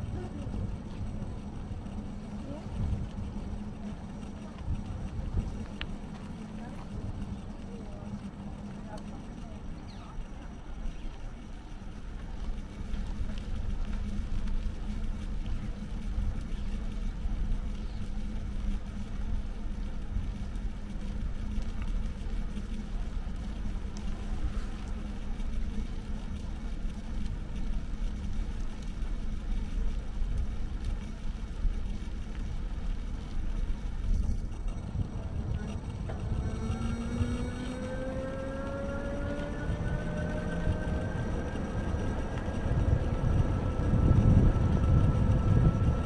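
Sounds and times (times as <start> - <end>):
road noise: 0.0 - 46.0
wind on microphone: 33.7 - 46.0.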